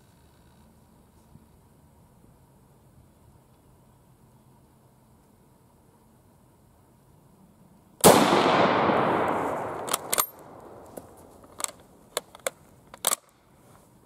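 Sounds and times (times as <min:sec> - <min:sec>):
rifle shot: 0:08.0 - 0:11.2
rifle bolt metallic clicks: 0:08.9 - 0:13.4.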